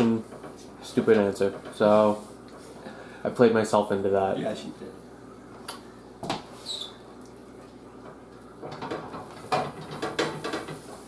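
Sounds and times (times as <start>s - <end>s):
short high squeak: 6.6s - 7.0s
pan clattering on stovetop: 8.1s - 11.0s.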